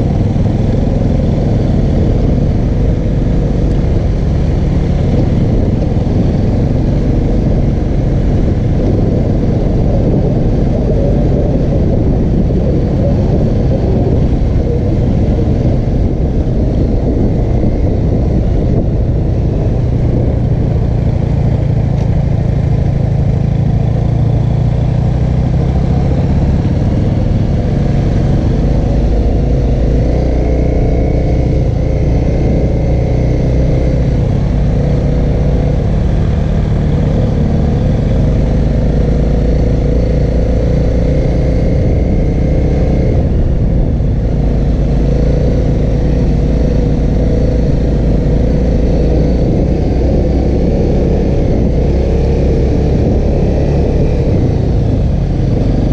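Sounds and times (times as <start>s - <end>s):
motorcycle engine running: 0.0s - 55.9s.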